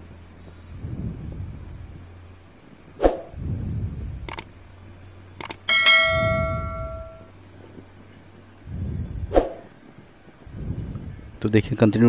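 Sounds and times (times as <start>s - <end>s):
bell-like metal clang: 5.7s - 7.3s.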